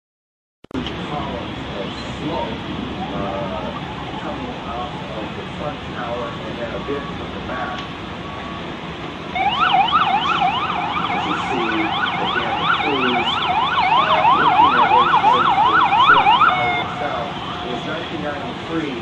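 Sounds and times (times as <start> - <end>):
siren yelping: 2.9 - 5.5, 9.3 - 18.5.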